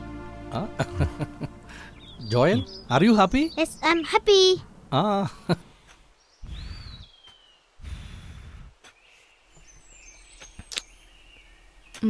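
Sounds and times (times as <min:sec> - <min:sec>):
small bird chirps: 0:01.8 - 0:04.3, 0:05.8 - 0:07.7, 0:08.9 - 0:12.0
falling whistled bird call: 0:06.4 - 0:07.6.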